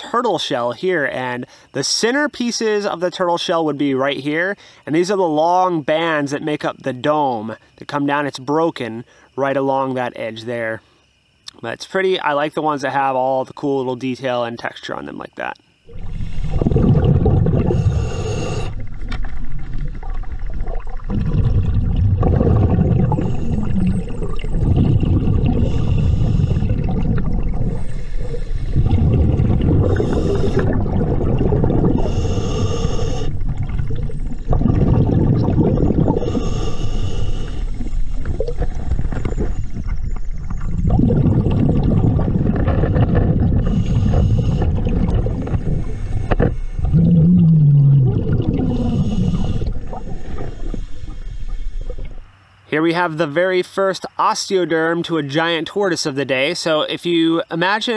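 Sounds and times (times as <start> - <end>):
regulator hissing inhalations: 15.7 - 16.8, 17.5 - 19.0, 23.0 - 24.3, 25.4 - 26.9, 27.7 - 29.0, 29.8 - 30.8, 31.9 - 33.5, 36.0 - 40.0, 43.6 - 46.9, 48.6 - 52.0
underwater exhaled bubbles rumbling: 15.9 - 52.3.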